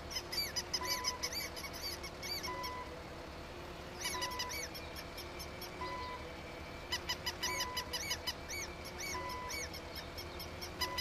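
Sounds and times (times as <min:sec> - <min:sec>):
high-pitched squeaks: 0:06.9 - 0:11.0.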